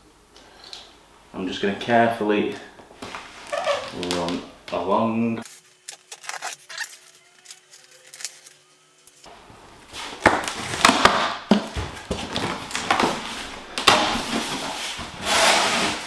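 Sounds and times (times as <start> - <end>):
packing tape being slit: 5.4 - 9.3
cardboard scraping and rustling: 11.7 - 16.0.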